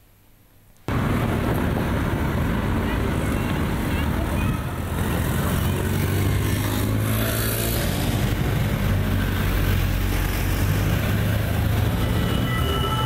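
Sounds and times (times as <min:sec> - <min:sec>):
cars passing: 0:00.9 - 0:13.0.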